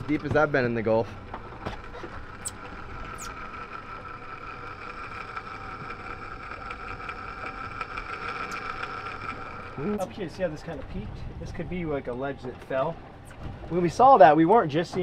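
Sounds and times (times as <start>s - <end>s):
fishing reel spool whirring: 0.0s - 10.6s.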